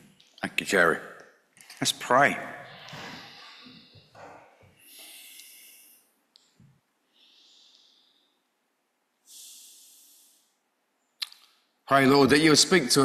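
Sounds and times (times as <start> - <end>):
man breathing into microphone: 2.7 - 6.1, 9.3 - 10.6.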